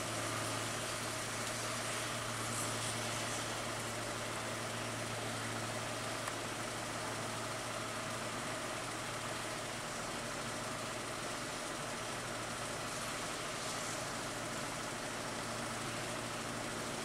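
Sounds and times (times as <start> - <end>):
even hiss: 0.0 - 6.0
combine harvester engine hum: 0.0 - 17.0.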